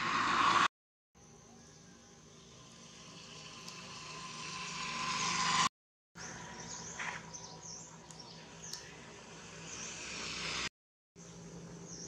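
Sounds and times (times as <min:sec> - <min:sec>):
vehicle passing on road: 0:00.0 - 0:00.7, 0:02.3 - 0:07.8, 0:08.4 - 0:10.7
faint insect drone: 0:01.2 - 0:06.8, 0:07.4 - 0:12.0
birds chirping: 0:06.2 - 0:10.6, 0:11.2 - 0:12.0.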